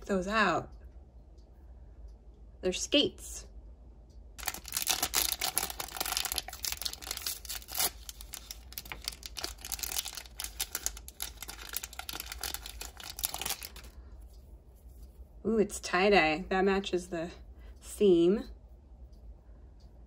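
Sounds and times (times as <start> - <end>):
plastic wrapping crinkling and tearing: 4.4 - 14.0.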